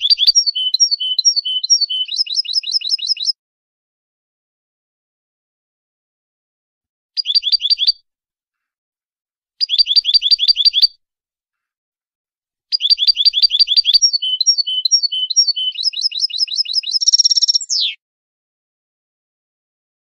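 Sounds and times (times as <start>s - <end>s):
goldfinch song: 0.0s - 3.4s, 7.2s - 8.0s, 9.6s - 11.0s, 12.7s - 18.0s.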